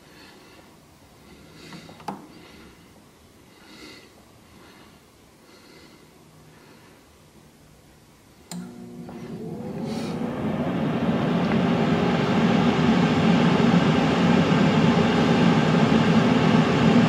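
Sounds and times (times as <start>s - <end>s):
breathing through the nose: 0.0s - 7.2s.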